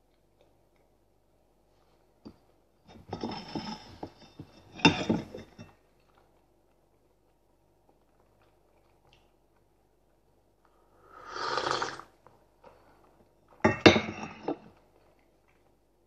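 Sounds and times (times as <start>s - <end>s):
tableware clicking and clattering: 2.9s - 5.8s, 13.6s - 14.8s.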